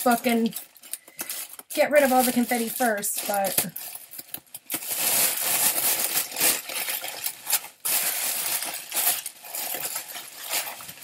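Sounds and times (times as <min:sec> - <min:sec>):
wrapping paper rustling and crinkling: 0:00.0 - 0:11.0.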